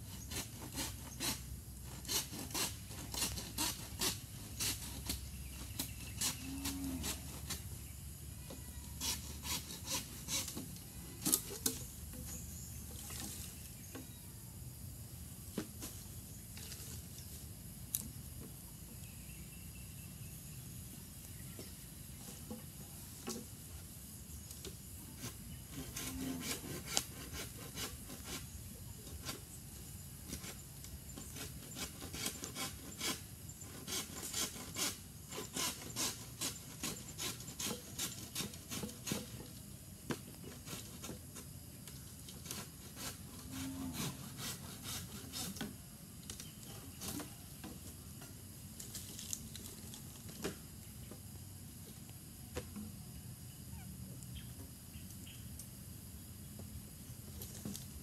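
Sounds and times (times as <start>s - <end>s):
knife scraping bamboo: 0.0s - 7.9s, 8.6s - 14.1s, 24.6s - 29.6s, 30.3s - 45.8s, 46.4s - 47.4s.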